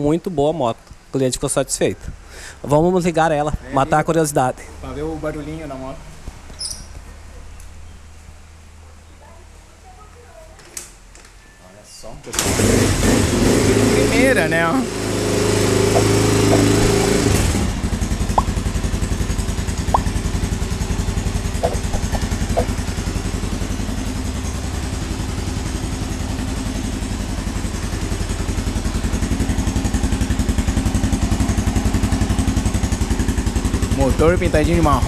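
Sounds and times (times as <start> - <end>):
motorcycle engine idling: 14.2 - 35.0.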